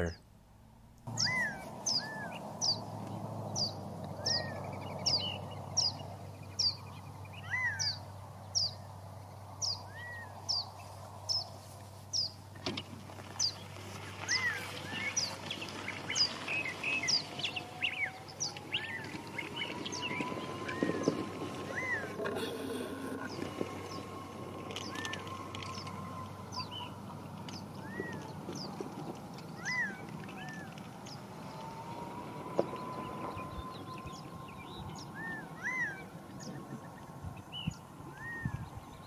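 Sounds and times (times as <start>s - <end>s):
songbirds calling: 1.0s - 39.0s
faint rising drone: 13.4s - 28.8s, 29.6s - 39.0s.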